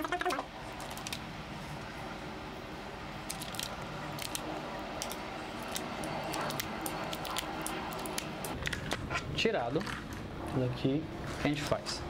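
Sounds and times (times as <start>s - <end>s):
keycaps clicking: 5.0s - 8.8s.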